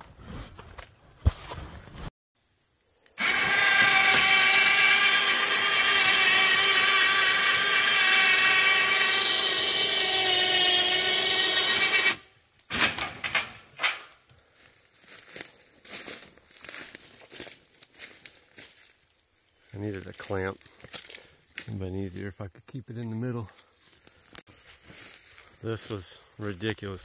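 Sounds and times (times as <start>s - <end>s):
electric winch motor whining: 3.2s - 12.3s.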